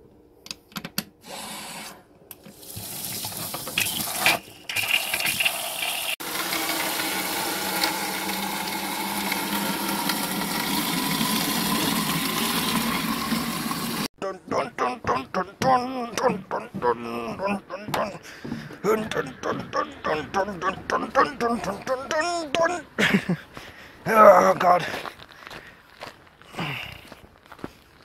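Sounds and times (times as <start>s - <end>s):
water filling a container: 2.5s - 14.1s.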